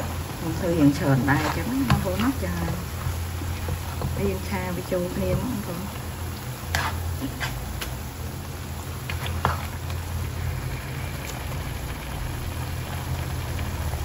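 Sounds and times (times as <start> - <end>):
sauce sizzling in a frying pan: 0.0 - 14.0
spatula scraping and tapping pan: 0.8 - 4.5, 6.4 - 8.0, 9.0 - 9.9.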